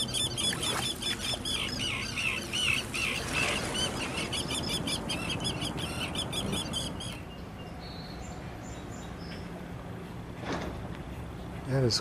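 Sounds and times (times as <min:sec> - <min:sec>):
bird chirping rapidly: 0:00.0 - 0:07.4.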